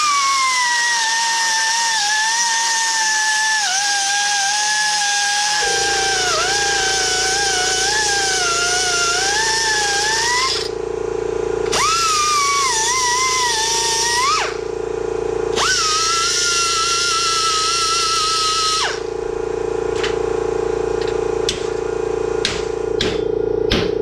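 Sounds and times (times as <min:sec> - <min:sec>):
grinder cutting metal: 0:00.0 - 0:10.8, 0:11.6 - 0:14.7, 0:15.5 - 0:20.2
low steady hum: 0:05.6 - 0:24.0.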